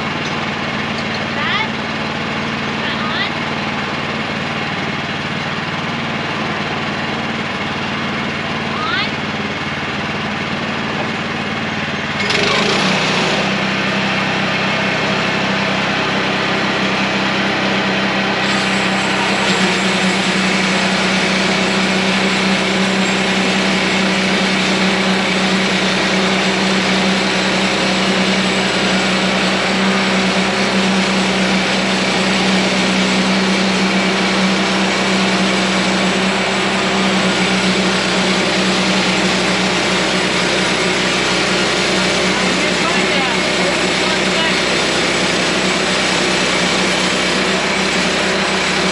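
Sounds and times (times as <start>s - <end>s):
small gasoline engine running: 0.0s - 48.9s
band saw cutting wood: 10.0s - 48.9s.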